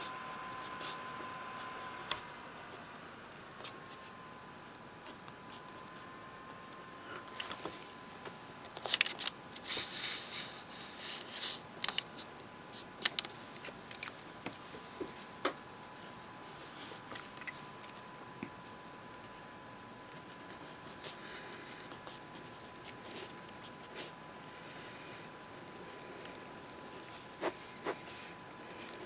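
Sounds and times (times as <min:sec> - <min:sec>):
notebook paper crinkling: 0:08.6 - 0:10.3, 0:11.1 - 0:14.6.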